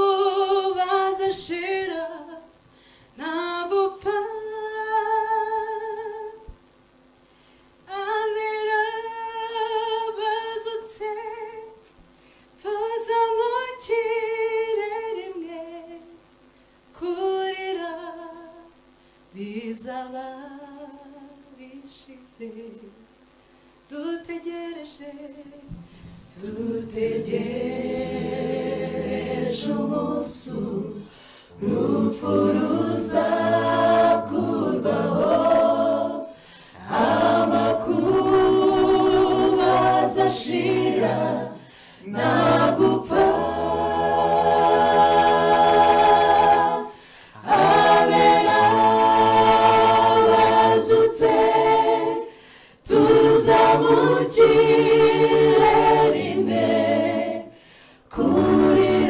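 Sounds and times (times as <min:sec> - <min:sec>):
mixed choir singing a cappella: 0:00.0 - 0:02.5, 0:03.2 - 0:06.5, 0:26.2 - 0:59.0.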